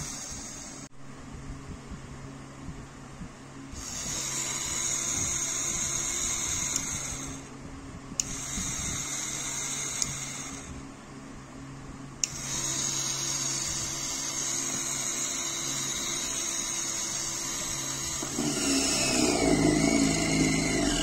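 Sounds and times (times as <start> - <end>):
small drill motor whining: 0.0 - 0.9, 3.7 - 7.5, 8.2 - 10.8, 12.2 - 21.0
drill switch click: 9.9 - 10.4, 12.2 - 12.5.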